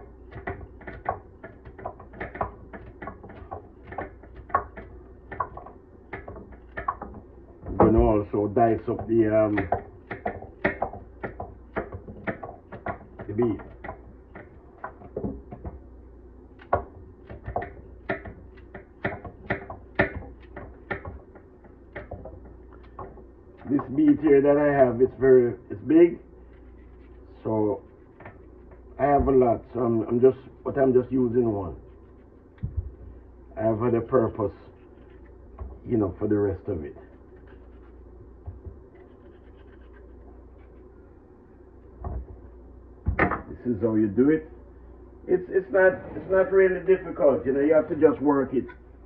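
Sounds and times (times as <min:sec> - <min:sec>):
knife cutting carrot: 0:36.8 - 0:40.8
knife sawing through beet: 0:39.0 - 0:40.7.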